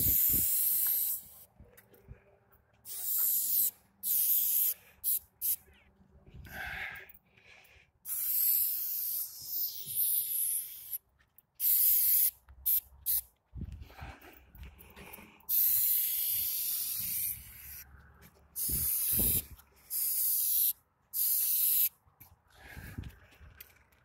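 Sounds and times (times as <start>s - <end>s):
spray paint can hissing: 0.0s - 1.5s, 2.9s - 5.6s, 8.1s - 11.0s, 11.6s - 13.3s, 15.5s - 17.8s, 18.6s - 22.0s.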